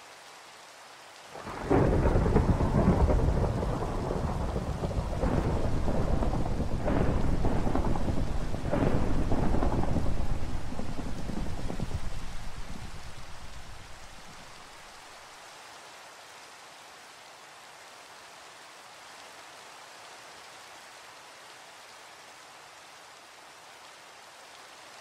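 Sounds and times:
steady rain: 0.0 - 25.0
thunder rumbling: 1.4 - 14.6.

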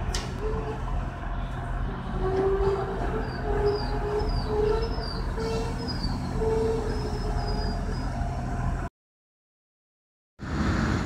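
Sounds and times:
railcar engine rumble: 0.0 - 8.9, 10.4 - 11.0
short squeals: 2.3 - 8.2.

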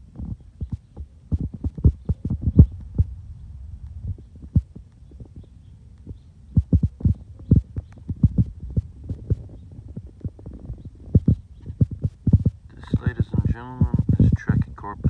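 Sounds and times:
wind buffeting microphone: 0.0 - 15.0
dull thumps: 6.1 - 14.8.

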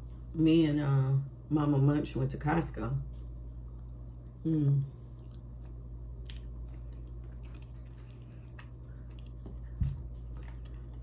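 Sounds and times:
low background hum: 0.0 - 11.0
person humming: 4.4 - 5.0
closed-mouth chewing: 5.1 - 11.0.

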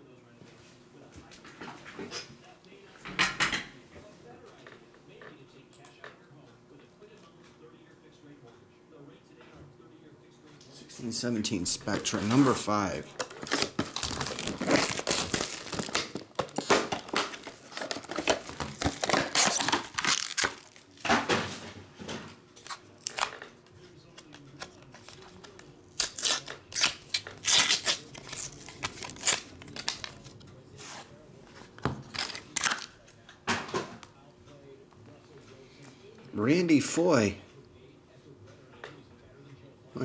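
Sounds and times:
plastic wrap tearing and crinkling: 11.8 - 21.0, 22.6 - 23.4, 24.6 - 30.3, 32.0 - 32.9
cardboard rustling: 11.8 - 21.6.

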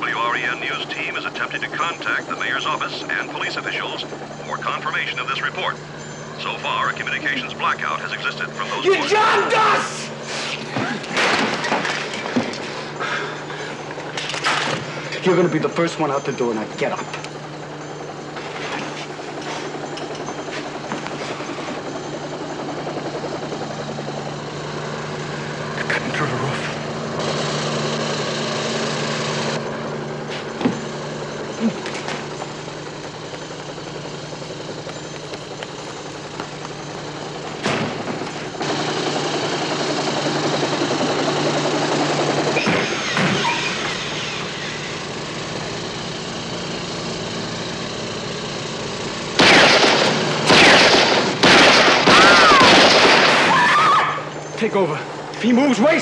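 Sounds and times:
steady low hum: 0.0 - 53.6
automatic rifle fire: 49.4 - 53.8.

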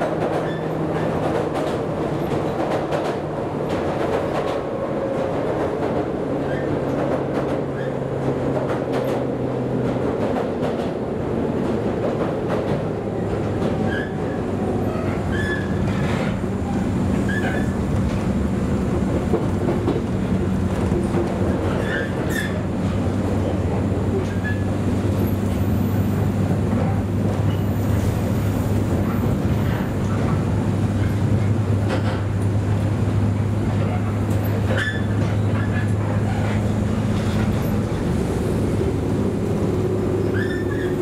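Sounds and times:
clickety-clack over rail joints: 0.0 - 41.0
wheels rumbling on rails: 0.0 - 41.0
short squeaks: 40.2 - 41.0.

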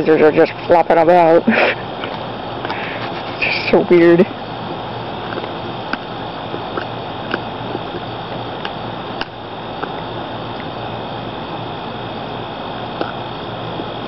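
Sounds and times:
steady background noise: 0.0 - 14.0
dog gnawing on bone: 4.6 - 10.8, 12.9 - 13.9
teeth clicking on bone: 5.2 - 10.7, 13.0 - 13.2.

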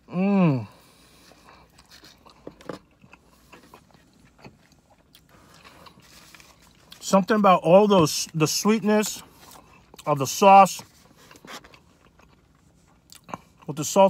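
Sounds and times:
man humming mmm: 0.0 - 0.8
soft chewing: 0.7 - 7.1, 9.0 - 10.2, 10.8 - 13.8.

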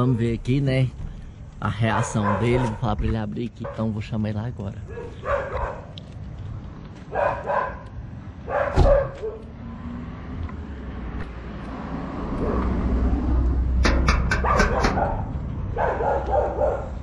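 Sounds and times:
dog barking: 1.9 - 2.9, 3.6 - 4.0, 4.9 - 6.0, 7.1 - 9.5, 14.4 - 17.0.

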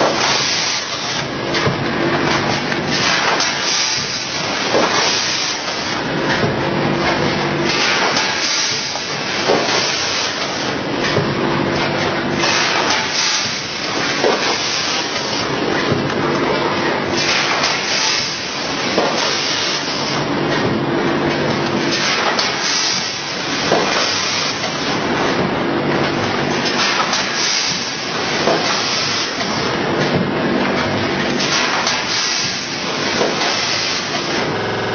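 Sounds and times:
sharp machine clacks: 0.0 - 16.2
packing machine running: 0.0 - 34.9.

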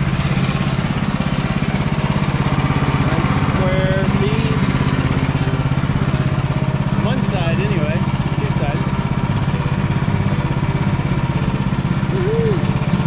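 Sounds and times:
small gas engine chugging: 0.0 - 13.0.

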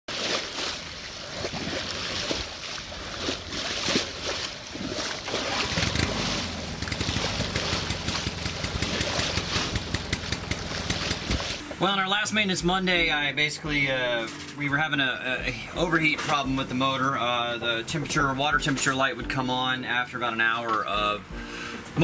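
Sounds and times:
water rushing along boat hull: 0.1 - 12.3
low fast-pulsing rumble: 5.7 - 11.6.

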